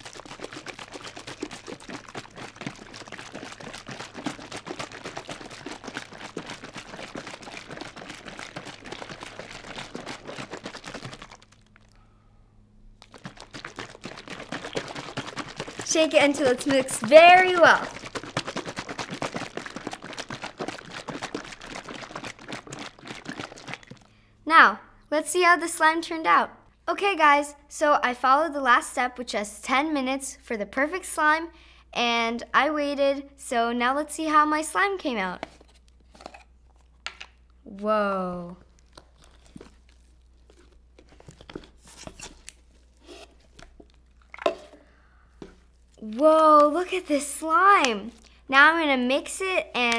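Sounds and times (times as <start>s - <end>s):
water sloshing in shaken tub: 0.0s - 12.0s, 13.0s - 24.2s, 38.7s - 46.0s
slime tearing and crackling: 38.7s - 41.4s.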